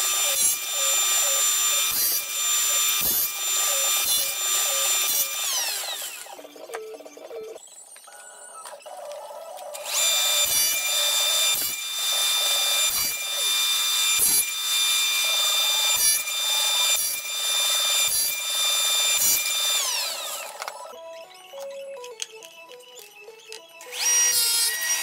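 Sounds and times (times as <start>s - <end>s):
saw blades spinning down: 0.0s - 6.4s, 23.9s - 25.0s
saw cutting wood: 0.0s - 7.1s, 9.8s - 21.0s, 23.8s - 25.0s
table saw whining: 0.0s - 7.6s, 9.8s - 25.0s.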